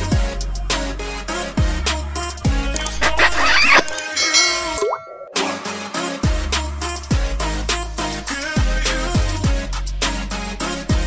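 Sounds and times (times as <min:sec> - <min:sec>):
music with deep bass kicks: 0:00.0 - 0:02.9, 0:06.2 - 0:11.0
bright swirling sound effect: 0:03.0 - 0:05.6.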